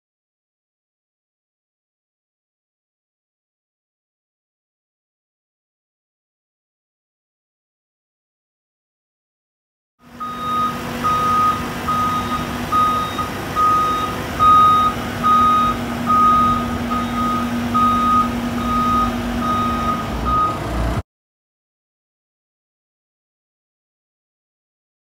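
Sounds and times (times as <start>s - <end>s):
vehicle engine running: 10.0s - 21.0s
reversing alarm beeping: 10.2s - 20.8s.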